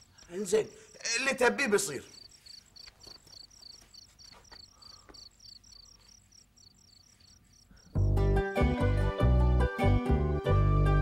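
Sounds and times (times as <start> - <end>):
crickets chirping: 0.0 - 8.1.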